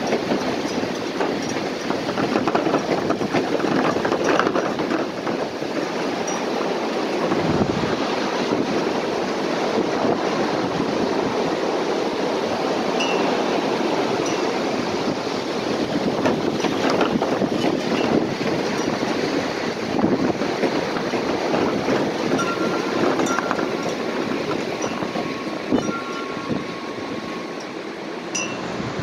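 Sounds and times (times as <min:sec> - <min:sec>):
gusty wind: 0:00.0 - 0:29.0
wind chime ringing: 0:13.0 - 0:13.4, 0:14.2 - 0:14.6, 0:22.3 - 0:24.2, 0:24.8 - 0:28.7.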